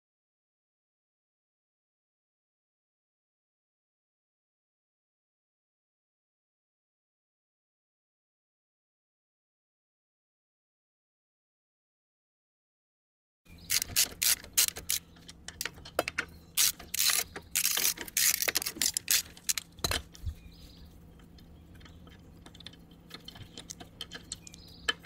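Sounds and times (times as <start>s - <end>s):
socket ratchet clicking: 13.7s - 15.8s, 16.6s - 19.6s.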